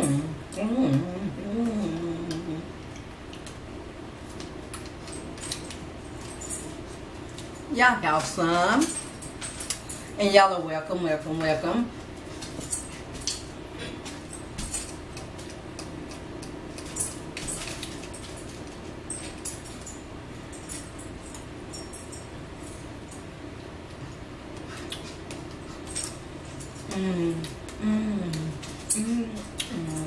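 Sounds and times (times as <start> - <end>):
steady low hum: 0.0 - 30.0
chewing and lip-smacking: 24.6 - 25.9.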